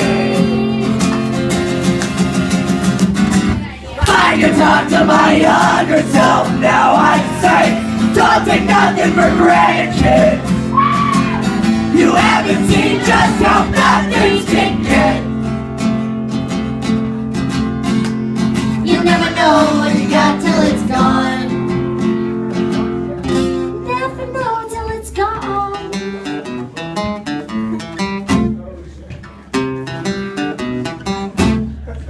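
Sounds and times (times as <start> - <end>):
person singing: 0.0 - 1.5, 18.8 - 21.7
acoustic guitar strumming: 0.0 - 28.7, 29.3 - 31.9.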